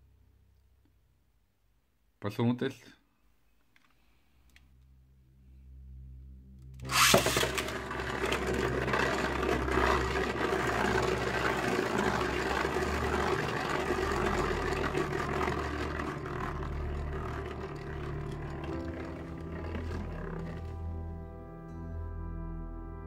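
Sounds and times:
spinning top whirring and scraping: 6.8 - 21.0
spinning top hitting stadium: 6.9 - 19.0.

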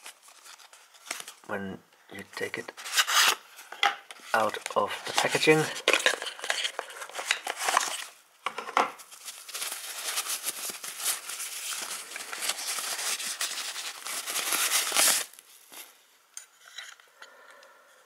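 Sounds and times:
packaging wrap crinkling: 4.4 - 8.2, 9.0 - 15.9.

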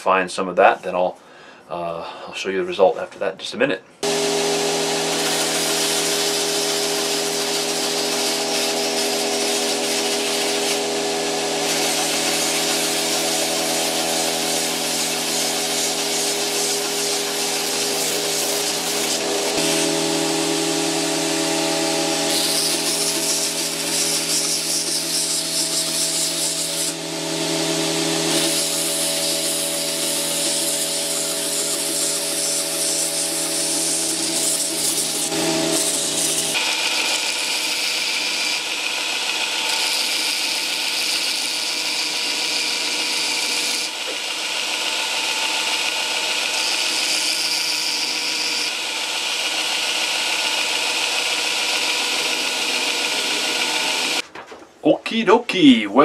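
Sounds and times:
belt grinder motor hum: 4.0 - 54.2
belt hissing on wood: 5.2 - 10.9, 11.6 - 20.0, 22.3 - 26.9.

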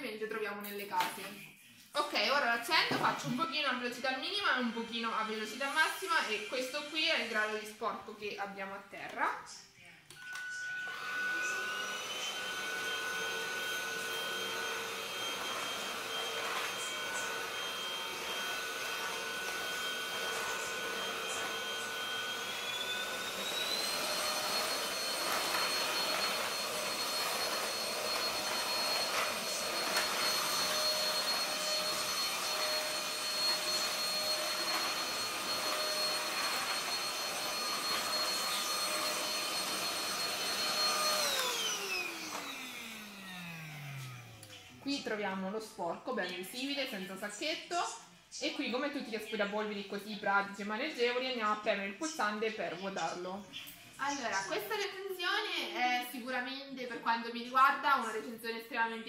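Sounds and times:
stick vacuum cleaner motor whine: 10.2 - 44.7.

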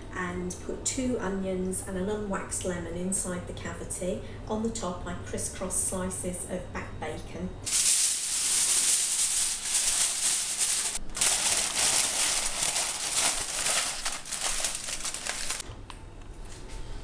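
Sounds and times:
aluminium foil crinkling: 7.7 - 15.6.

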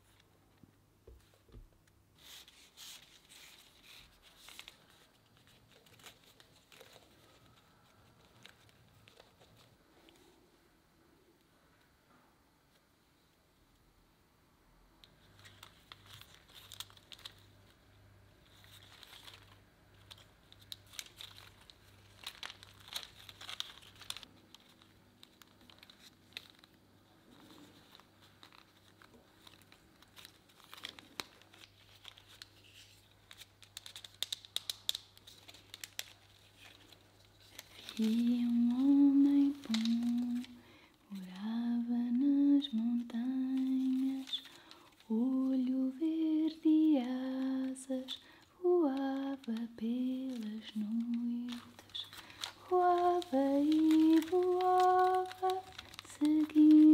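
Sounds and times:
bark strips rustling and crinkling: 2.2 - 10.3, 15.0 - 56.9
woman humming: 56.2 - 56.9.

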